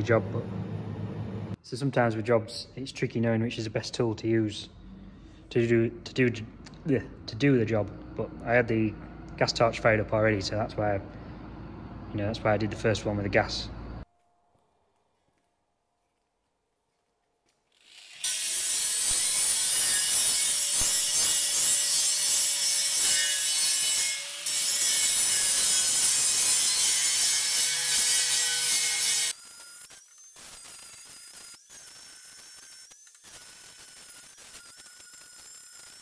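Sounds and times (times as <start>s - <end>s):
angle grinder grinding steel: 17.7s - 36.0s.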